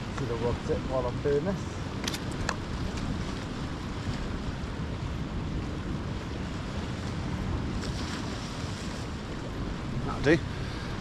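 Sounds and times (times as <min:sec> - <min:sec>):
surf washing against rocks: 0:00.0 - 0:11.0
wind buffeting microphone: 0:00.0 - 0:11.0
camera handling clicks: 0:02.0 - 0:02.6.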